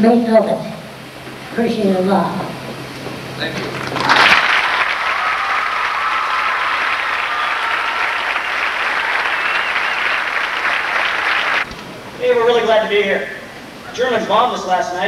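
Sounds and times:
audience applauding: 3.4 - 11.7.

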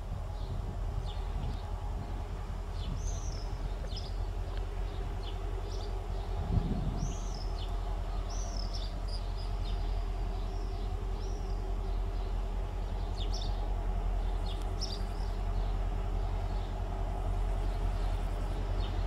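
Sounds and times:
low rumble and hum: 0.0 - 19.0
small birds chirping: 0.4 - 19.0.

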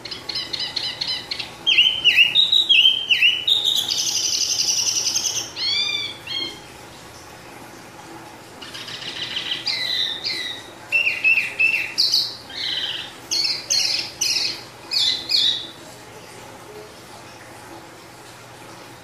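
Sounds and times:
songbird chirping and whistling: 0.0 - 6.6, 8.8 - 15.7.

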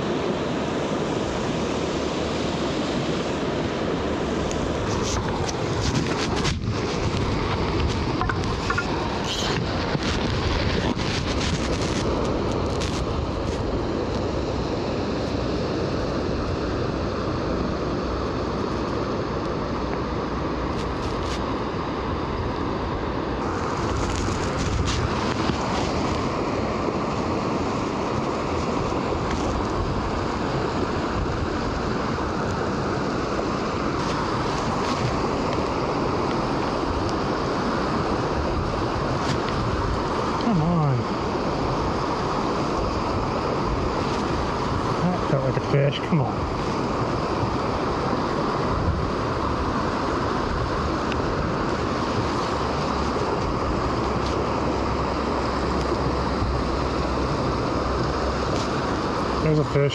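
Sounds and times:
wind buffeting microphone: 0.0 - 45.3, 46.0 - 59.5
river water rushing over rapids: 0.0 - 59.9.

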